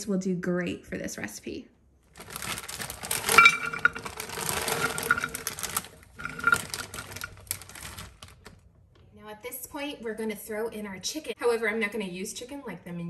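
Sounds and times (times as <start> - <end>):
frozen food rattling into pot: 2.1 - 8.6.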